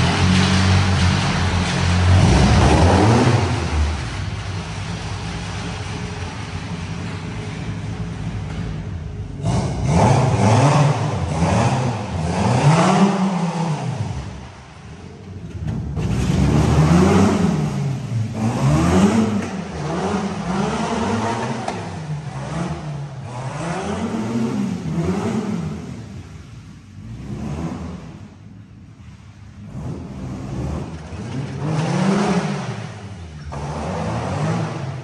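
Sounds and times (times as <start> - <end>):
car engines revving: 0.0 - 35.0.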